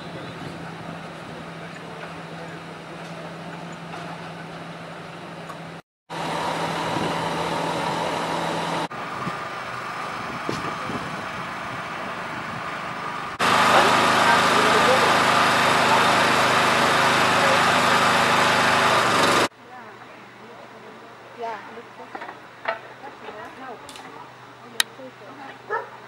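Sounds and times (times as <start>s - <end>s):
engine humming: 0.0s - 19.5s
outdoor background noise: 0.0s - 26.0s.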